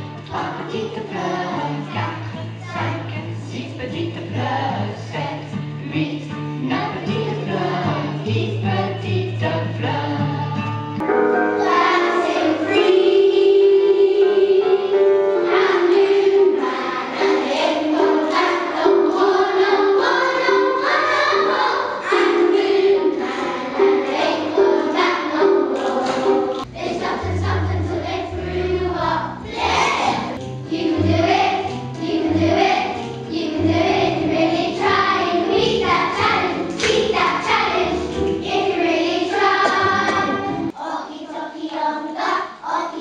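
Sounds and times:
children singing together: 0.0 - 10.8, 11.5 - 43.0
deeper musical accompaniment: 22.2 - 40.7.

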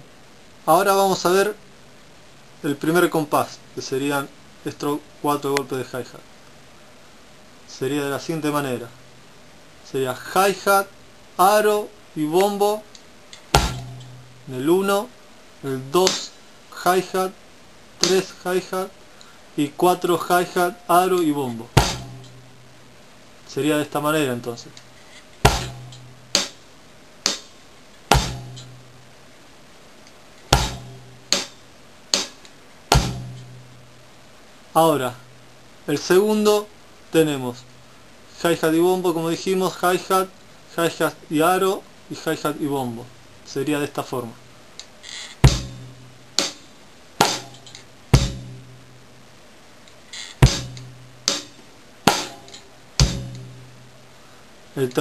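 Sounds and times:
bass drum hits: 13.5 - 14.4, 21.8 - 22.5, 25.4 - 26.6, 28.1 - 28.9, 30.5 - 31.6, 32.9 - 33.8, 45.4 - 46.6, 47.2 - 49.0, 50.4 - 53.9
hi-hat strokes: 16.0 - 16.4, 21.7 - 22.7, 25.0 - 29.1, 30.5 - 34.0, 45.0 - 49.0, 50.1 - 54.1.

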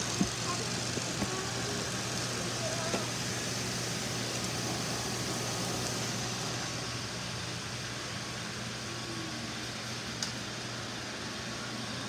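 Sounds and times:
robot vacuum cleaners whirring: 0.0 - 9.5
constant low hum: 0.0 - 12.0.

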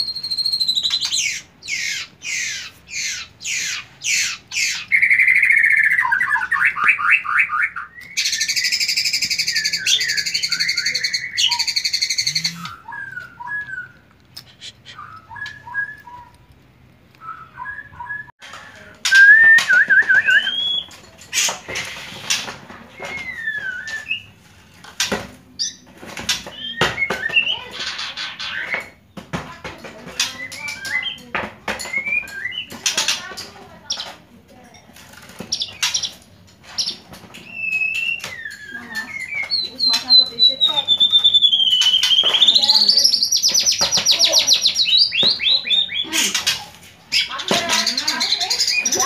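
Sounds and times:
bird singing varied song: 0.0 - 14.1, 14.8 - 16.5, 19.1 - 21.0, 25.6 - 29.0, 30.0 - 34.2, 35.4 - 49.0
harsh bird rattle: 19.1 - 26.7, 32.1 - 34.2.

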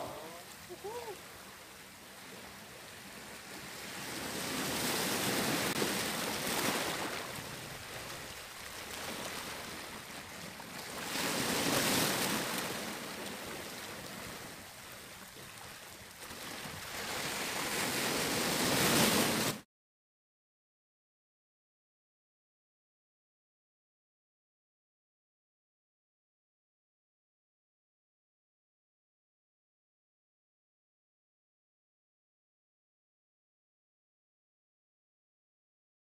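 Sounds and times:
surf breaking on rocky shore: 0.0 - 1.5, 3.7 - 10.1, 10.8 - 14.6, 16.3 - 19.6.

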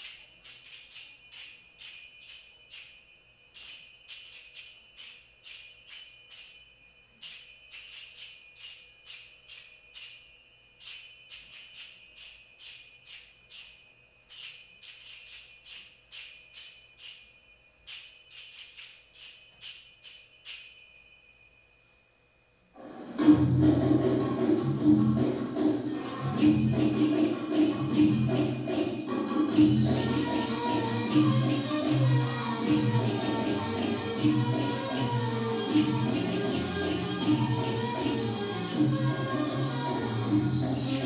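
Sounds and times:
finger cymbals ringing: 0.0 - 22.7, 26.2 - 41.0
music with drums and tambourine: 23.4 - 41.0.

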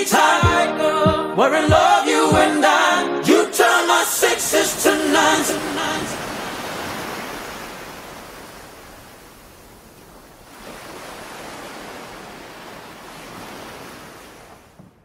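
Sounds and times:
waves washing on shore: 4.2 - 15.0.

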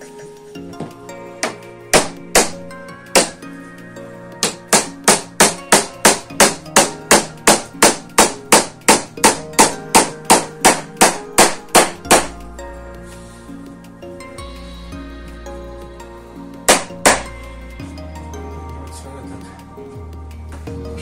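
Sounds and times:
background music: 0.0 - 21.0.

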